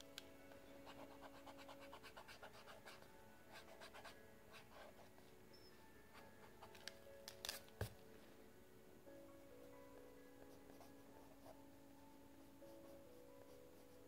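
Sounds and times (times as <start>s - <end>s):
pen scratching on paper: 0.8s - 5.1s.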